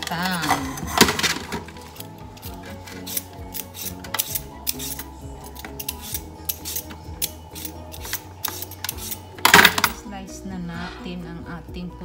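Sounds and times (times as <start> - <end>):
background music: 0.0 - 12.0
peeler scraping potato: 1.6 - 9.3.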